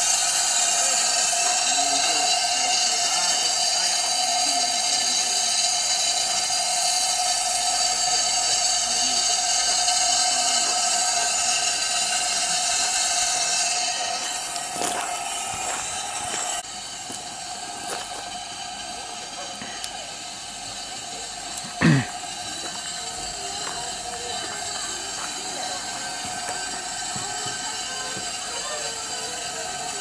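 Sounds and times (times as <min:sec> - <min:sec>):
steam hissing from locomotive: 0:00.0 - 0:30.0
steady whistling note: 0:22.5 - 0:30.0.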